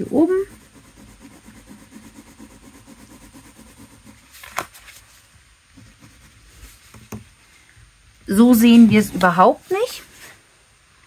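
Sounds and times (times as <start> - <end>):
crayon scribbling on paper: 0.0 - 4.4, 5.8 - 6.8.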